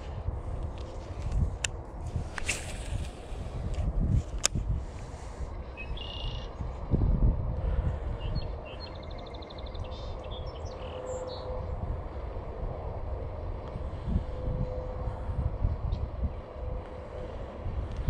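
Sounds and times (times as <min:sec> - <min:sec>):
wind buffeting the microphone: 0:00.0 - 0:18.0
small birds chirping: 0:05.7 - 0:06.6, 0:08.2 - 0:11.5.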